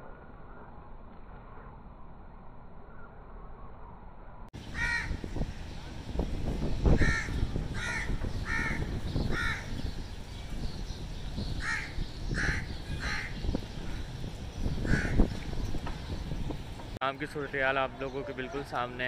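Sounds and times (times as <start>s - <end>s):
crows cawing: 4.6s - 5.3s, 6.9s - 9.8s, 11.6s - 13.4s, 14.8s - 15.3s.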